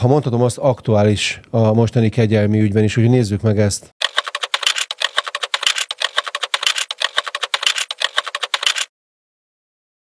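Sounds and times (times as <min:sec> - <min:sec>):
rapid keyboard typing clicks: 0:04.0 - 0:08.9.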